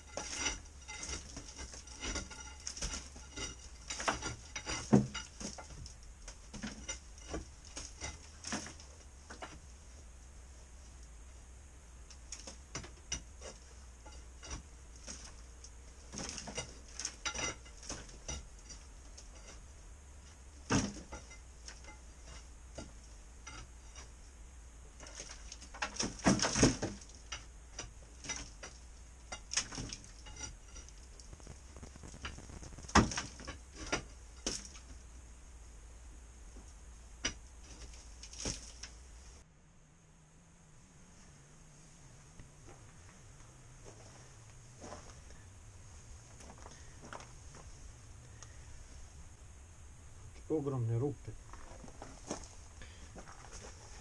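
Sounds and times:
stones and plaster clattering: 0.0s - 10.0s, 12.2s - 24.3s, 24.9s - 35.1s, 36.6s - 39.1s.

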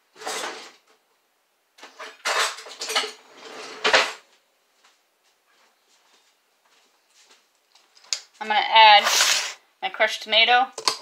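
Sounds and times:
metal utensils clattering: 1.8s - 4.2s, 9.0s - 9.6s.

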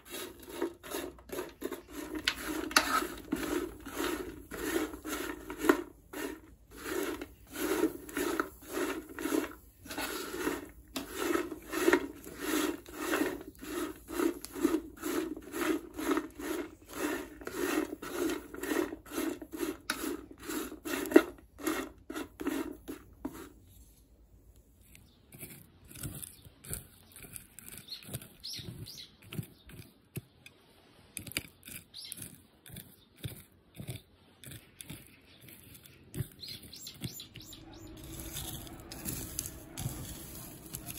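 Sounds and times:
wooden spatula scraping a pan: 0.0s - 24.1s, 36.2s - 40.9s.

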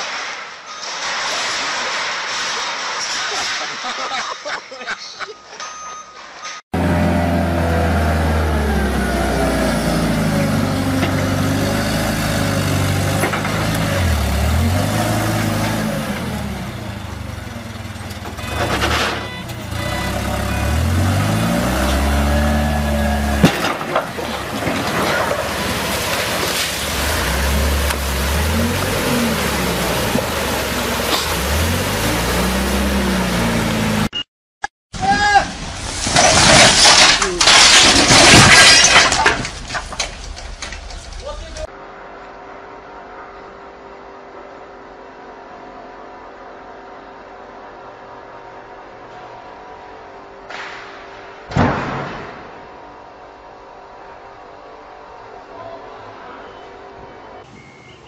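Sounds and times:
forklift engine revving: 6.8s - 34.1s.

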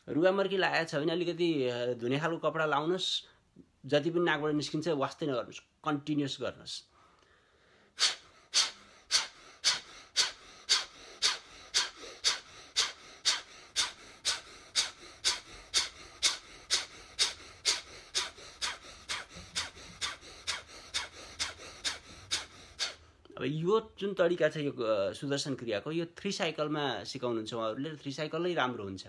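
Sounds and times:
man's rapid forced nasal breathing: 7.0s - 23.2s.

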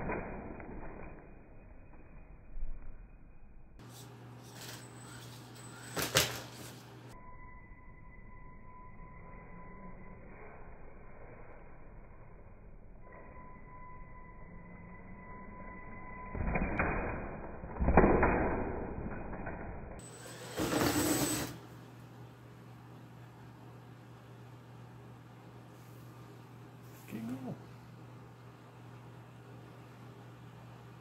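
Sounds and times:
steady low hum: 0.0s - 17.7s
toy truck electric motor revving: 20.0s - 21.6s.

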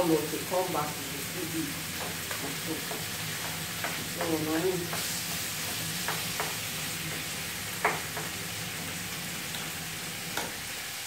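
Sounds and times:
vegetables sizzling in a frying pan: 0.0s - 11.0s
wooden spoon knocking a pan: 2.0s - 8.4s.

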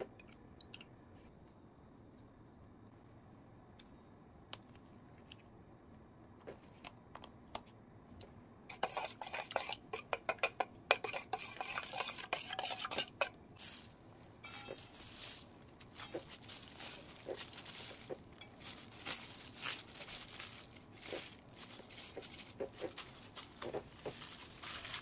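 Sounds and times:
utensils clinking on dishes: 14.4s - 14.9s.

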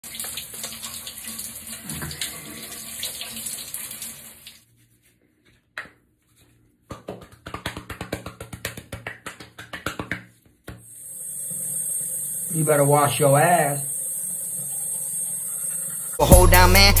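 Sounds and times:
shower water spraying: 10.9s - 17.0s.

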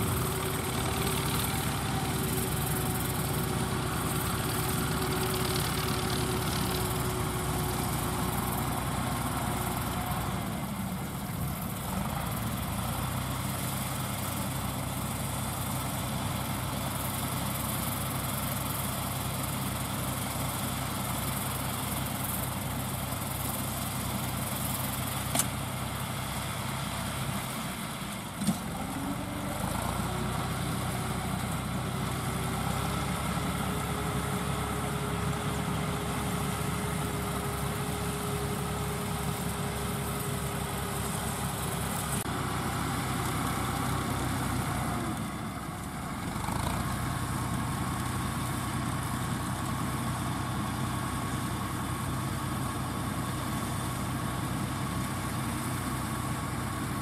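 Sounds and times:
straw baler running: 0.0s - 57.0s
tractor diesel engine running: 0.0s - 57.0s.

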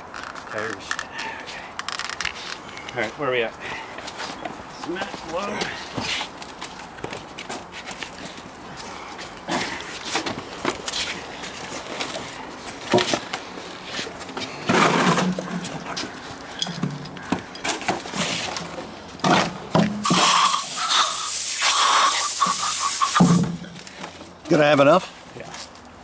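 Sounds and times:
concrete balusters knocking and scraping: 3.9s - 20.3s
steady loud hiss: 19.9s - 23.8s.

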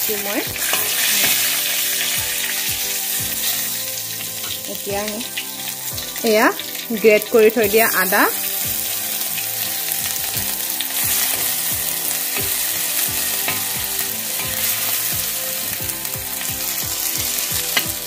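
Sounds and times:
spices sizzling in hot oil: 0.0s - 18.0s
metal spoon stirring: 0.6s - 2.6s, 9.3s - 18.0s.

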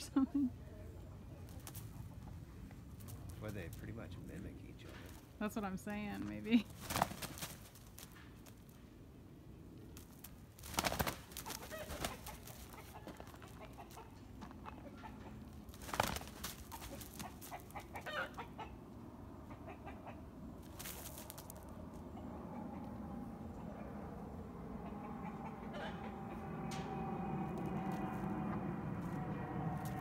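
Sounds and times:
wings flapping: 1.4s - 2.1s, 6.6s - 8.8s, 9.8s - 18.4s, 20.6s - 21.7s
bird clucking calls: 10.7s - 21.2s, 24.7s - 26.6s.

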